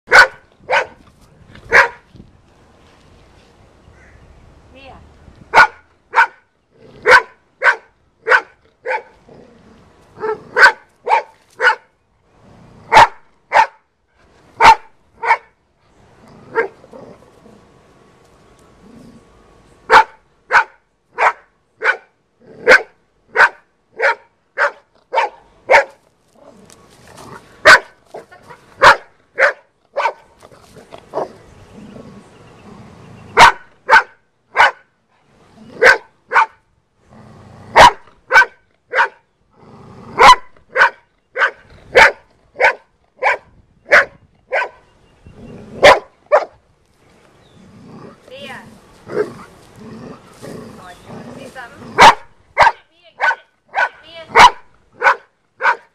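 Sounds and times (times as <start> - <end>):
dog barking: 0.1 - 1.0, 1.7 - 2.0, 5.5 - 6.4, 7.0 - 9.1, 10.2 - 11.9, 12.9 - 13.8, 14.6 - 15.5, 19.9 - 22.1, 22.7 - 26.0, 27.6 - 30.2, 33.4 - 34.8, 35.8 - 36.6, 37.8 - 39.2, 40.2 - 44.8, 45.8 - 46.6, 52.0 - 55.9.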